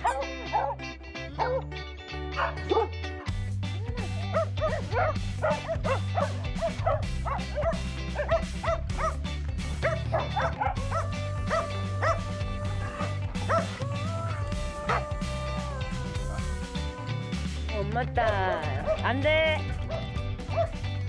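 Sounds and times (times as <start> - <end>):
dogs barking and yipping: 0.0 - 3.1, 4.0 - 13.8, 18.8 - 19.0, 19.7 - 20.9
background music: 0.0 - 21.0.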